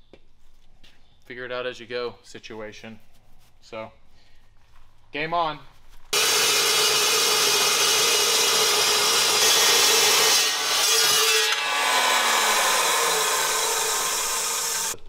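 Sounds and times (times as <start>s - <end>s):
motor whining: 6.2s - 15.0s
saw blade screeching in steel: 6.2s - 15.0s.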